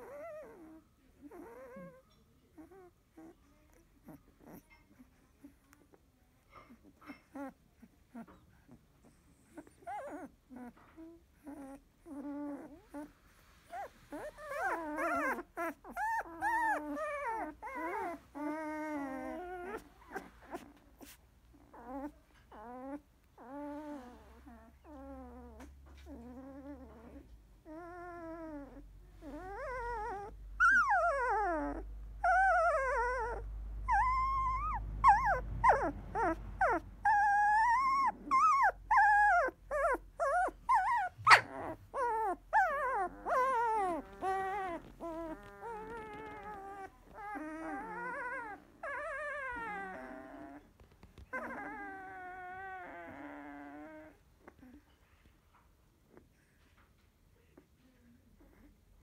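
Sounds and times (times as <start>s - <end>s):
puppies whimpering and squeaking: 0.0s - 5.8s, 6.5s - 56.4s.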